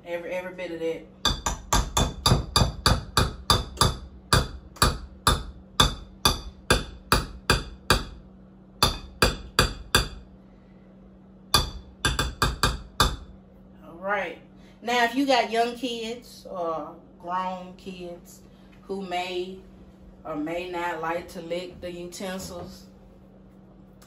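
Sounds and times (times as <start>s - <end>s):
metal beater knocking on bowl: 1.2s - 8.2s, 8.8s - 10.2s, 11.5s - 13.4s.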